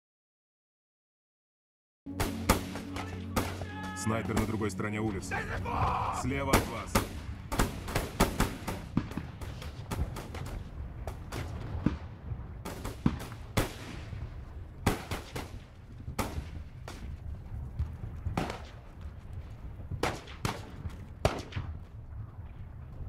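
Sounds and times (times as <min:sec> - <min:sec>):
low battle rumble: 0:04.2 - 0:23.0
rifle shots echoing: 0:06.4 - 0:16.6, 0:20.0 - 0:21.8.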